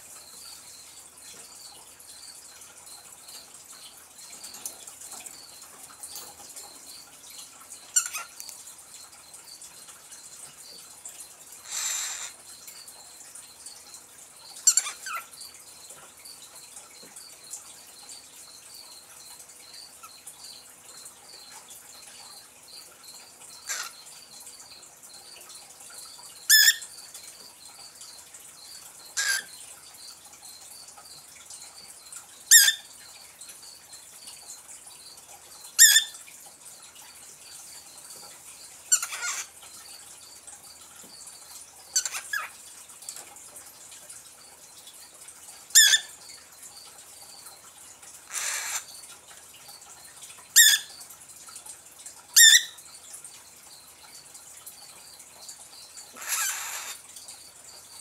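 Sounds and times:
cockatiel chirping: 32.5 - 32.8, 35.8 - 36.1, 45.7 - 46.0.

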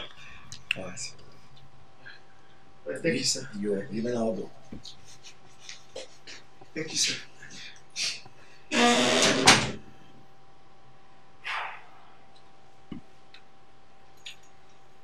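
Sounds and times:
door creaking shut: 8.7 - 9.8.

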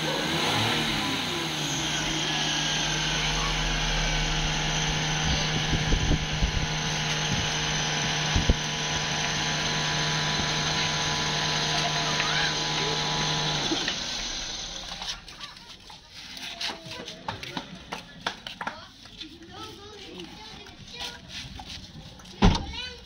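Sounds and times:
dull low knocks: 4.4 - 9.7.

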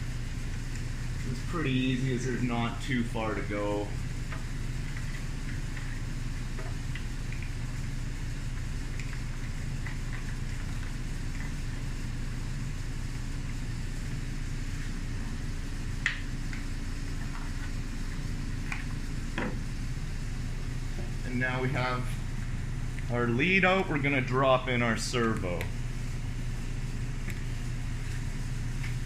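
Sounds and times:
low machine hum: 0.0 - 29.0.

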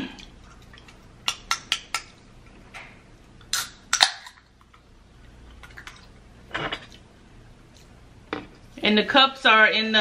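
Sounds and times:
can opening crack: 3.4 - 4.4.

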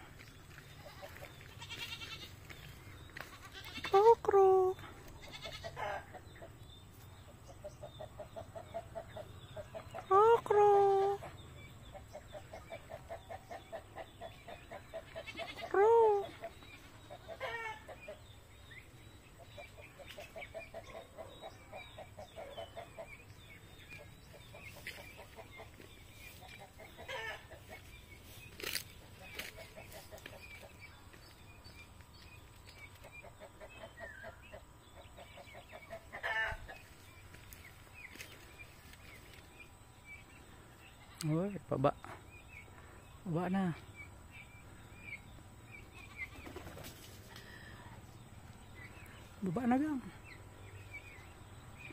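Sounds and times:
turkeys calling: 11.2 - 31.2.

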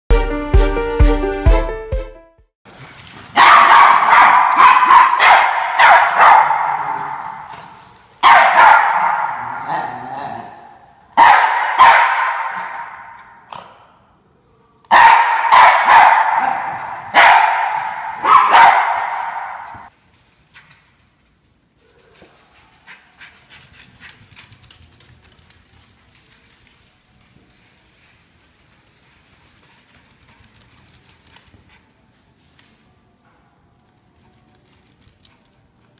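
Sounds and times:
dogs barking sharply: 3.3 - 13.5, 14.9 - 19.9.

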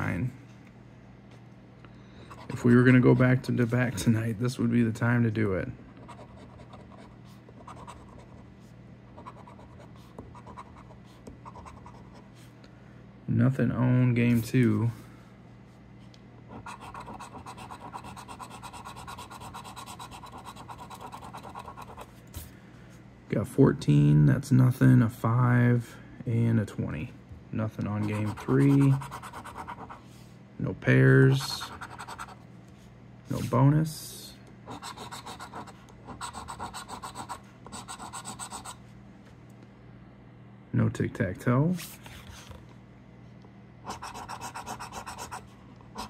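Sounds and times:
coin scratching lottery ticket: 16.5 - 22.1, 28.0 - 30.0, 31.4 - 32.4, 34.7 - 38.8, 43.9 - 45.4.

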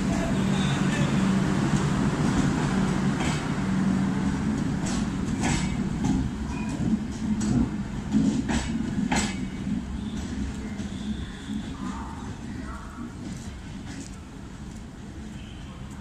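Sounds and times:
train coaches rumbling past: 0.0 - 16.0
train wheel clicks on track: 4.6 - 11.7.

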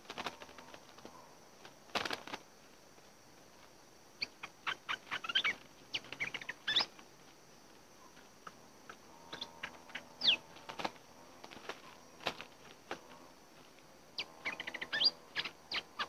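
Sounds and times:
bird wingbeats: 0.0 - 16.0
birds chattering chirps: 4.2 - 7.0, 8.0 - 13.3, 14.1 - 16.0.

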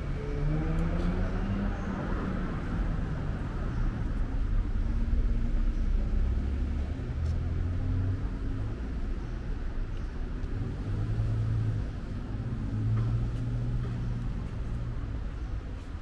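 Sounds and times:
car traffic rumble: 0.0 - 16.0.

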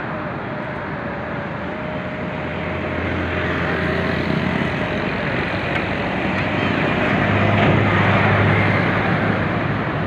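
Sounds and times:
floodwater rushing roar: 0.0 - 10.0.

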